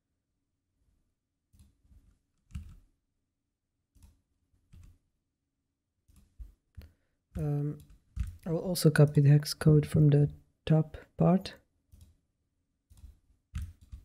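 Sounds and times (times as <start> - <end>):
computer mouse and keyboard clicks: 1.5 - 2.9, 3.9 - 5.0, 6.0 - 7.0, 7.7 - 8.4, 11.9 - 12.2, 12.9 - 14.0.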